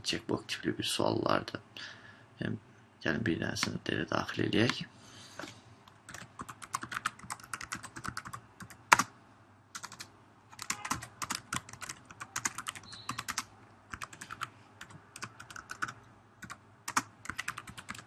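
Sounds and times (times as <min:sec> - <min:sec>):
typing on computer keyboard: 0:06.1 - 0:09.1, 0:09.8 - 0:18.0.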